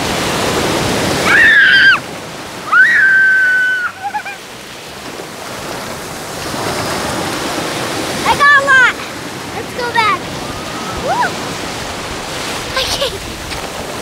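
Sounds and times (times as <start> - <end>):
ocean surf washing in: 0.0 - 14.0
child squealing: 1.2 - 2.0, 2.6 - 4.4, 10.5 - 11.4.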